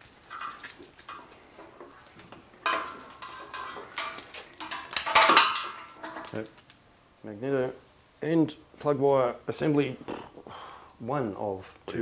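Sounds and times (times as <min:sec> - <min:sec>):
metal parts clanking and rattling: 0:00.2 - 0:01.9, 0:02.6 - 0:06.8.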